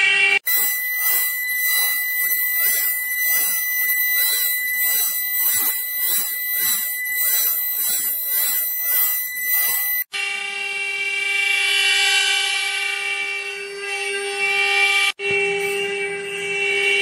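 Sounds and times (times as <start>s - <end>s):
router cutting noise: 0.4s - 10.1s
spindle whine: 0.4s - 10.1s.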